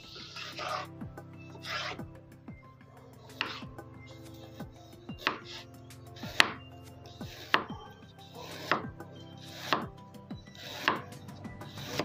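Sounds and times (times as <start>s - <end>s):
knife cutting on wooden board: 10.6s - 11.1s.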